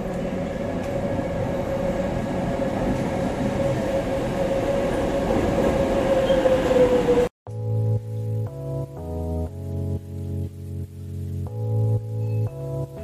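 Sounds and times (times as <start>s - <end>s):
train rolling noise: 0.0s - 7.3s
train whine: 0.0s - 7.3s.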